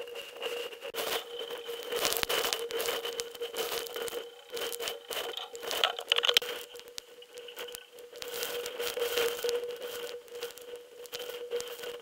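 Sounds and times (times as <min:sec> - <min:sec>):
faint steady whine: 0:00.0 - 0:12.0
raindrops clicking on camera: 0:02.0 - 0:10.6.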